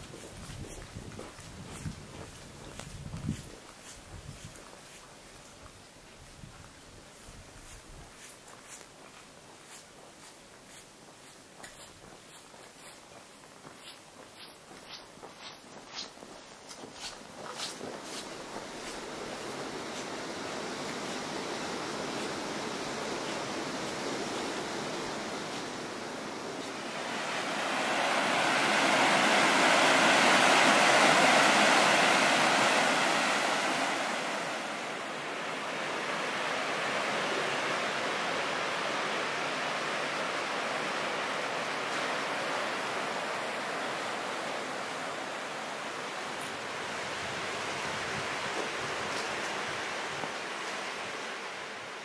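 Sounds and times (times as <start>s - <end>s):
flowing river water: 17.0s - 52.0s.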